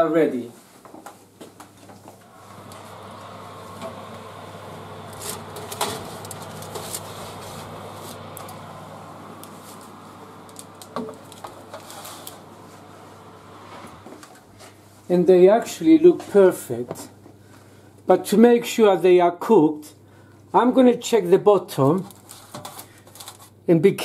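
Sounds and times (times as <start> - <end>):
oven fan whirring: 2.1 - 16.8.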